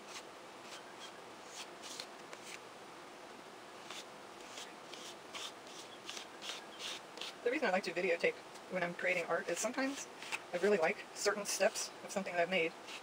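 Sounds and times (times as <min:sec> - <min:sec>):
plastic card scraping on paper: 0:00.1 - 0:02.6, 0:03.8 - 0:07.4.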